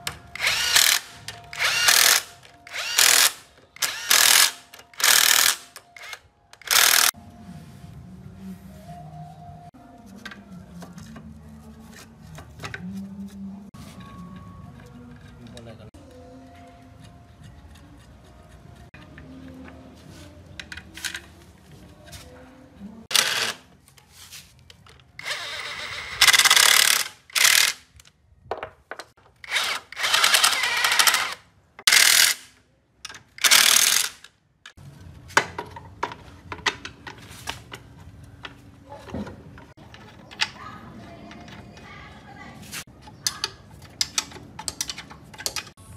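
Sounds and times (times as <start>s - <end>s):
cordless power driver running: 0.4s - 7.1s, 25.2s - 27.8s, 29.5s - 32.4s
metal tool clicks and knocks: 43.0s - 45.8s.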